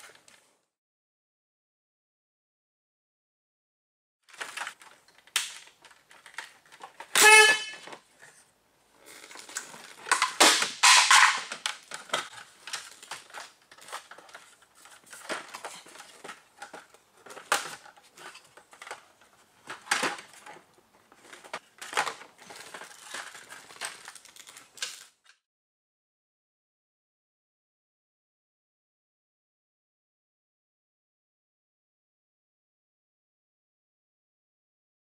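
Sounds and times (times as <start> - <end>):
rustling of panels and clothing: 4.3 - 25.4.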